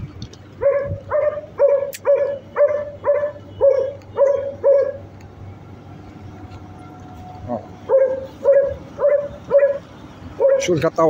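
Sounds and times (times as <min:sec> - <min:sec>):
dog barking: 0:00.6 - 0:05.0, 0:07.9 - 0:10.8.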